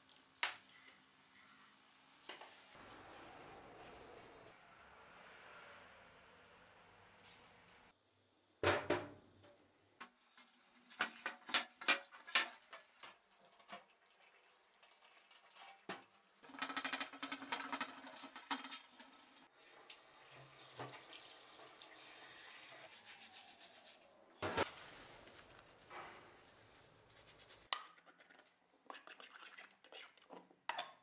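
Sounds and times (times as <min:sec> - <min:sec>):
running tap water: 0:10.2 - 0:15.6, 0:16.4 - 0:22.9.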